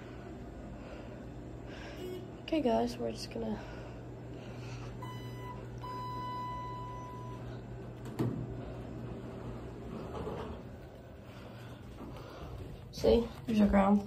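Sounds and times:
low steady hum: 0:00.0 - 0:14.0
elevator beeps: 0:05.0 - 0:07.7.

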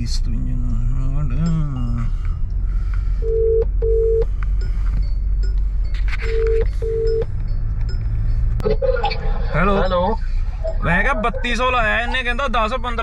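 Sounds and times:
telephone ringback tone: 0:06.2 - 0:07.3.

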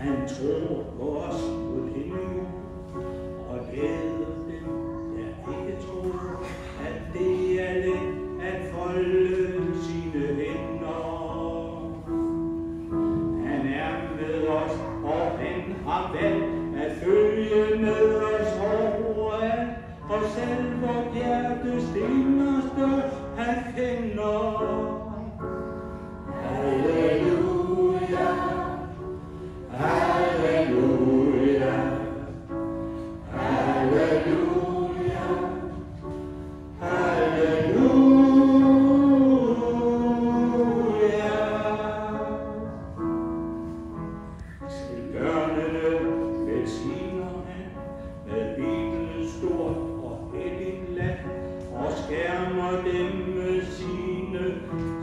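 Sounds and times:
man singing into microphone: 0:00.0 - 0:02.8, 0:03.4 - 0:12.3, 0:13.2 - 0:25.6, 0:36.8 - 0:42.8, 0:44.6 - 0:55.0
mixed choir singing: 0:26.3 - 0:32.5, 0:33.2 - 0:36.0, 0:36.8 - 0:42.0.

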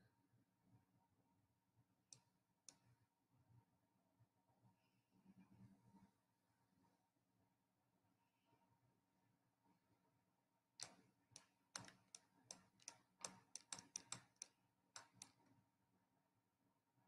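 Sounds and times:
faint clicks: 0:10.8 - 0:15.4.

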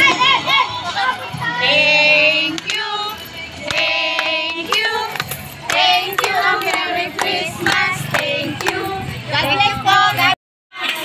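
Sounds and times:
group singing a carol: 0:01.4 - 0:11.0
hand claps: 0:03.6 - 0:08.8.

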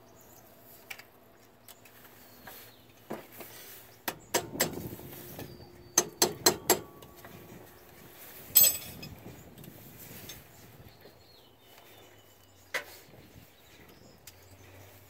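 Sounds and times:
ringing metallic clank: 0:08.5 - 0:09.2.

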